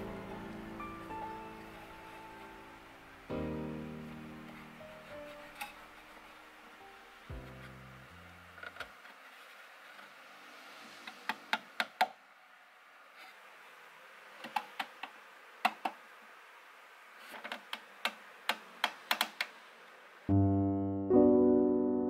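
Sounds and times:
piano music: 0:00.0 - 0:08.5, 0:20.3 - 0:22.0
wooden strips clicking and tapping: 0:14.4 - 0:16.0, 0:17.3 - 0:19.6.

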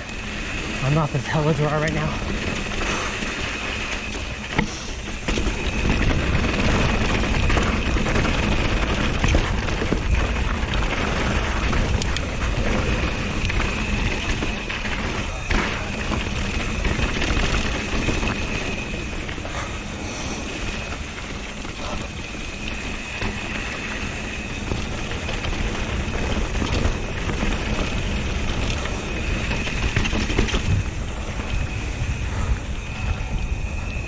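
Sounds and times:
bike tyres rumbling on dirt: 0:00.0 - 0:34.0
thin high whine: 0:00.0 - 0:34.0
wind buffeting microphone: 0:00.0 - 0:34.0.

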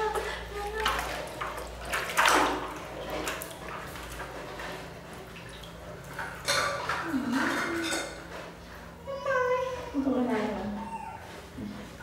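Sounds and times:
water splashing and dripping: 0:00.0 - 0:08.1.

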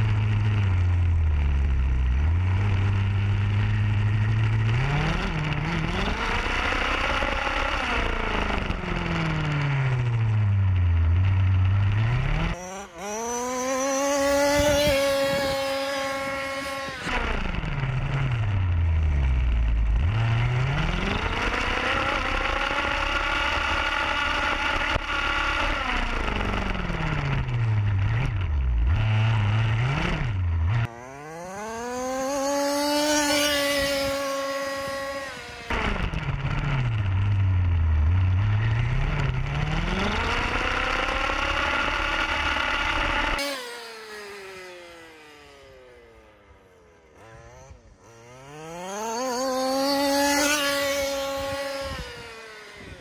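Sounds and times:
model car engine revving: 0:00.0 - 0:53.0.

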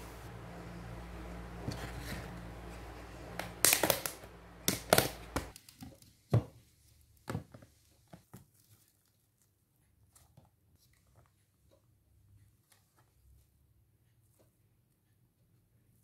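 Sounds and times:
steady low hum: 0:00.0 - 0:05.5.

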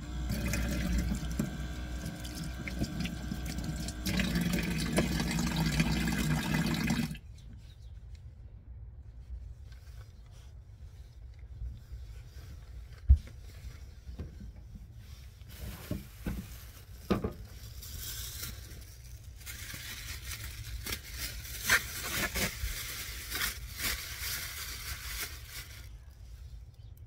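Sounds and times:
plastic bag rustling: 0:00.3 - 0:06.9, 0:14.9 - 0:26.9.

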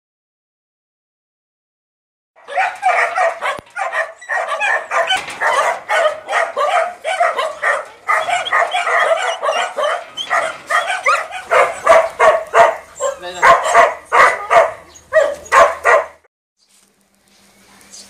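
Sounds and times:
dogs barking and yipping: 0:02.4 - 0:16.3.

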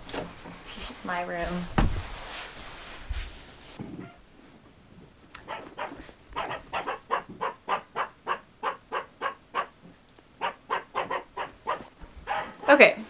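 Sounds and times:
dog barking: 0:05.4 - 0:09.8, 0:10.4 - 0:12.9.

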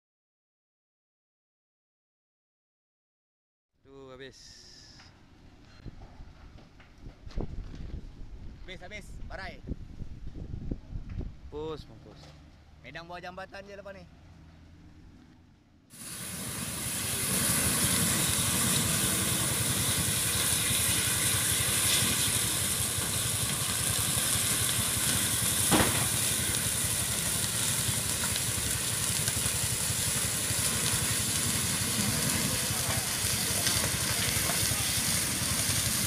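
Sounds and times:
large fire crackling: 0:15.9 - 0:36.0
sharp crack: 0:20.4 - 0:36.0.

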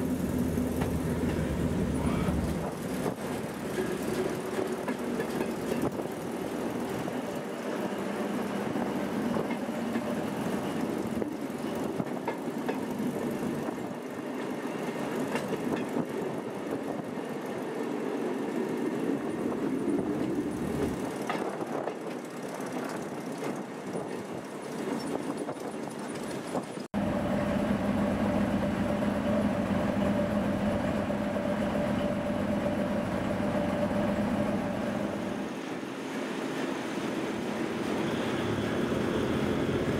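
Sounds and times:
engine hum with droning: 0:00.0 - 0:07.2, 0:27.0 - 0:35.6, 0:37.6 - 0:39.9
diesel engine rumble: 0:00.0 - 0:07.3, 0:26.5 - 0:35.6
wheel and rail noise: 0:00.0 - 0:39.9.

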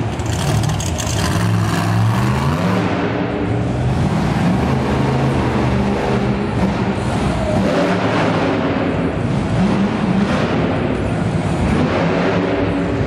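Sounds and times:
monster truck engine revving: 0:00.0 - 0:13.0.

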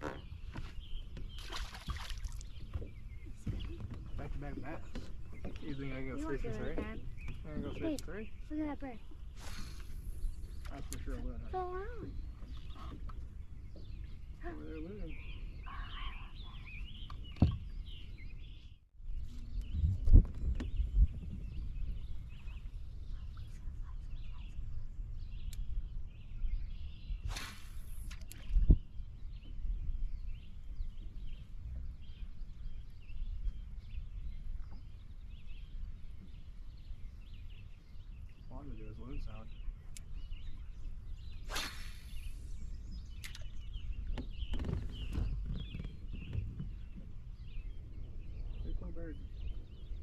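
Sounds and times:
small birds chirping: 0:00.0 - 0:50.0
wind buffeting microphone: 0:00.0 - 0:50.0
fishing rod swishing: 0:27.2 - 0:28.4, 0:41.4 - 0:42.6.

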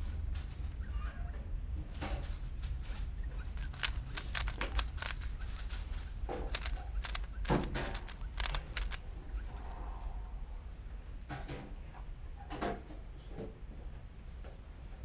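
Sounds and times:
steady low hum: 0:00.0 - 0:15.0
puzzle cube clicking: 0:03.4 - 0:09.0.

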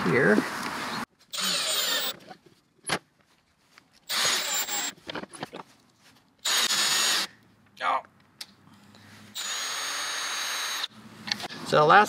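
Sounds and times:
cordless drill boring into wood: 0:01.3 - 0:02.2, 0:04.1 - 0:04.9, 0:06.4 - 0:07.3, 0:09.4 - 0:10.9.

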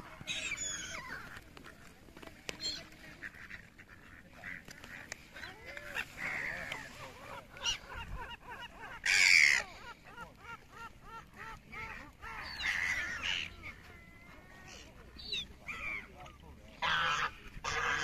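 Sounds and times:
ducks calling: 0:00.0 - 0:18.0
gulls calling: 0:00.0 - 0:18.0.

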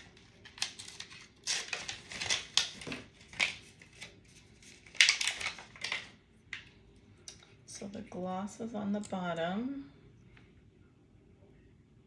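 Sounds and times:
plastic packaging crackling: 0:00.0 - 0:06.8.

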